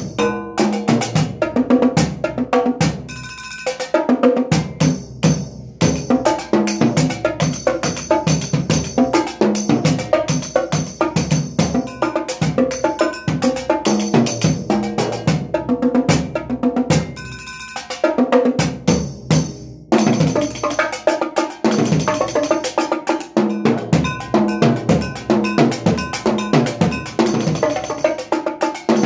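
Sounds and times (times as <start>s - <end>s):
ringing metal percussion: 0.0s - 1.1s, 3.0s - 4.0s, 4.7s - 15.3s, 17.0s - 18.0s, 20.0s - 29.0s
drums played with sticks: 0.0s - 29.0s.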